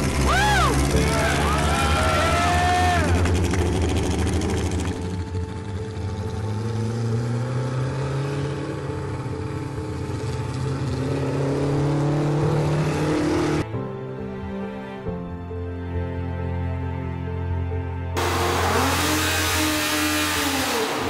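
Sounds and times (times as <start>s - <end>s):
race car engine driving past: 0.0s - 13.6s, 18.2s - 21.0s.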